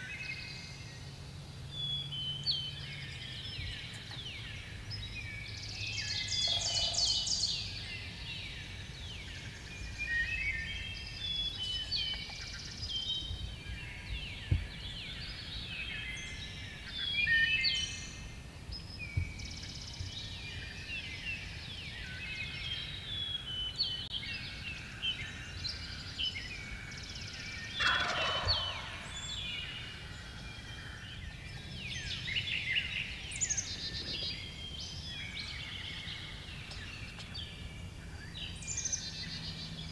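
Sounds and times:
songbirds chirping: 0:00.0 - 0:39.9
turkey gobbling: 0:27.8 - 0:29.2.

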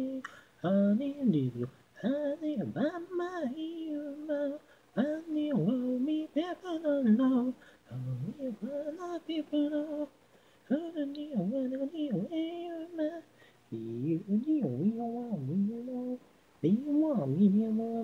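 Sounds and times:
person singing alone: 0:00.0 - 0:18.0
singer breathing: 0:00.2 - 0:00.6, 0:04.6 - 0:05.0, 0:07.6 - 0:07.9, 0:10.2 - 0:10.7, 0:13.3 - 0:13.7.

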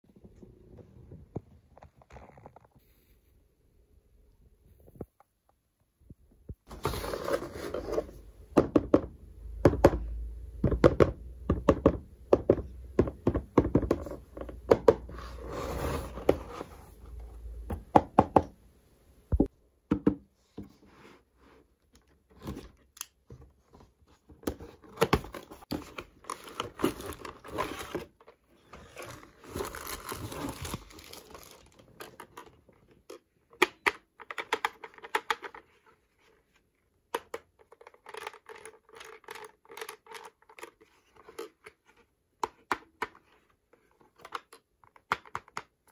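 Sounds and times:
wrapping crinkling: 0:28.9 - 0:32.3.

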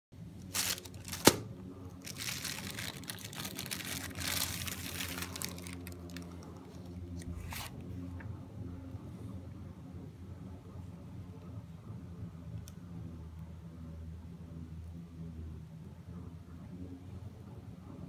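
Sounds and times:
plastic wrapping crinkling: 0:00.4 - 0:07.8.

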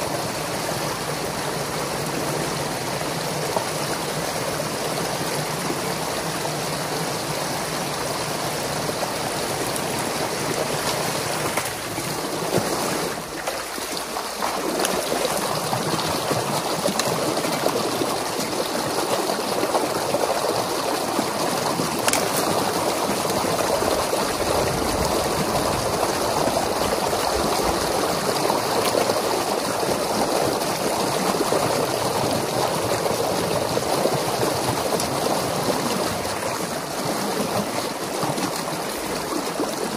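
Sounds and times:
water rushing and splashing: 0:00.0 - 0:39.9.

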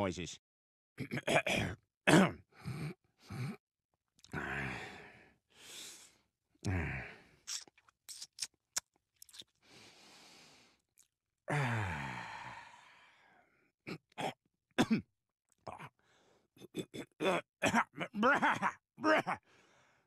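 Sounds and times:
man sighing and groaning: 0:04.3 - 0:05.1, 0:06.6 - 0:07.3, 0:11.5 - 0:13.1
lip smacks and mouth clicks: 0:07.4 - 0:09.5.

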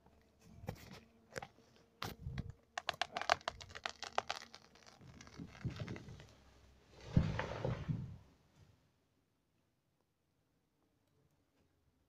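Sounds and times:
tree wood cracking and splintering: 0:02.8 - 0:06.4.

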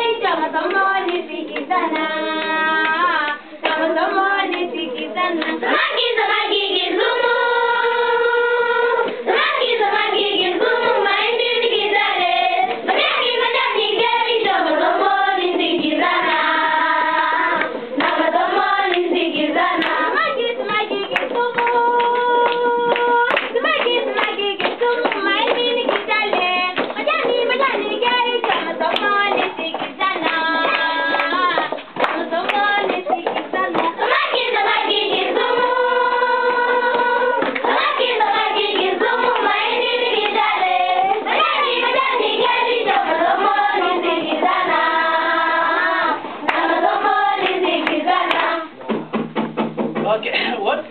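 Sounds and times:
children singing together: 0:00.0 - 0:48.8
hands clapping: 0:00.6 - 0:02.2, 0:02.8 - 0:06.2, 0:17.4 - 0:19.2, 0:19.8 - 0:35.6, 0:36.8 - 0:44.8, 0:46.4 - 0:49.0.

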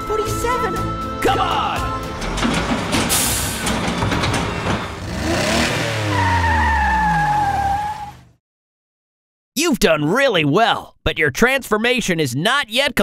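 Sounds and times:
cartoon engine revving with clatter: 0:02.2 - 0:08.3.

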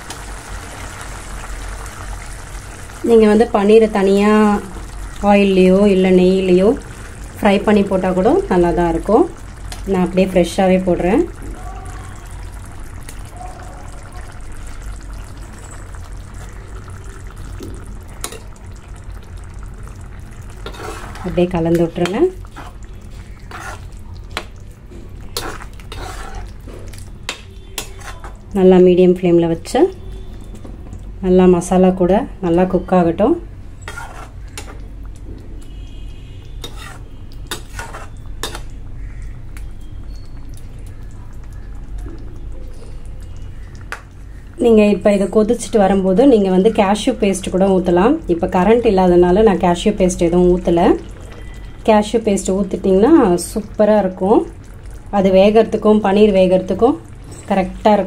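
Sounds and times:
gravy simmering and bubbling: 0:00.0 - 0:28.8, 0:32.5 - 0:58.0
metal spoon scraping a pan: 0:20.6 - 0:21.4, 0:22.5 - 0:24.0, 0:25.4 - 0:26.5, 0:27.7 - 0:28.4, 0:33.8 - 0:34.7, 0:36.6 - 0:38.7.

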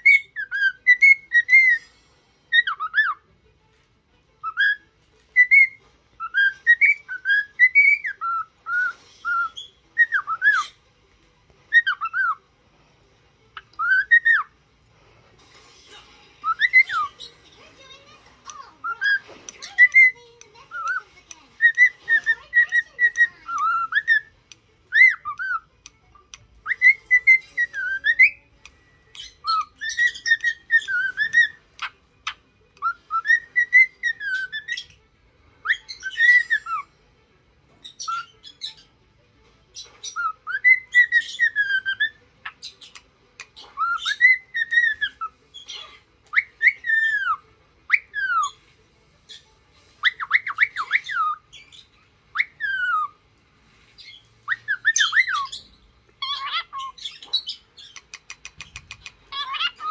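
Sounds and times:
cockatiel whistling: 0:00.0 - 0:01.9, 0:02.5 - 0:03.2, 0:04.4 - 0:10.8, 0:11.7 - 0:12.4, 0:13.6 - 0:14.5, 0:16.4 - 0:17.2, 0:21.6 - 0:24.3, 0:24.9 - 0:25.6, 0:26.6 - 0:28.4, 0:29.1 - 0:34.9, 0:35.6 - 0:36.9, 0:37.9 - 0:38.8, 0:39.9 - 0:48.6, 0:50.0 - 0:53.2, 0:54.0 - 0:59.9
scratchy bird chatter: 0:13.6 - 0:28.4, 0:53.8 - 0:59.9.

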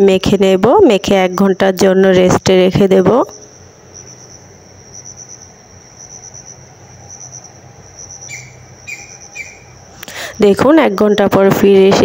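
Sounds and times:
crickets chirping: 0:00.0 - 0:12.0.

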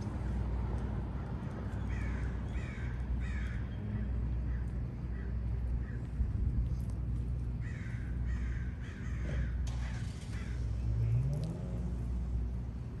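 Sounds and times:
low street rumble: 0:00.0 - 0:13.0
crows cawing: 0:01.8 - 0:06.1, 0:07.6 - 0:10.6.

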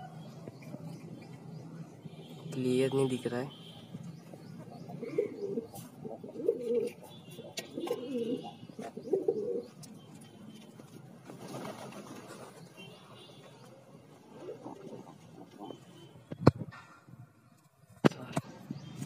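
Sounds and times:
pigeons cooing: 0:04.4 - 0:09.8, 0:14.3 - 0:16.0.

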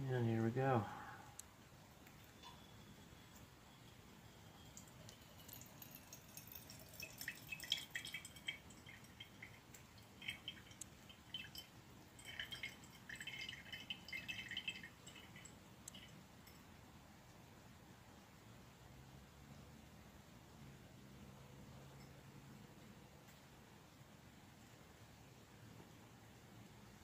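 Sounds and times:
liquid dripping into a beaker: 0:01.0 - 0:16.9.

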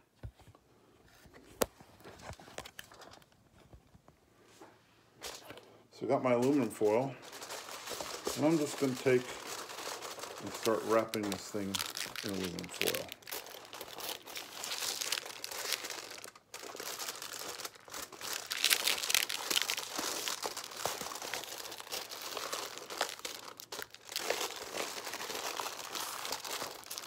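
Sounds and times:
aluminium foil crinkling: 0:05.3 - 0:27.0.

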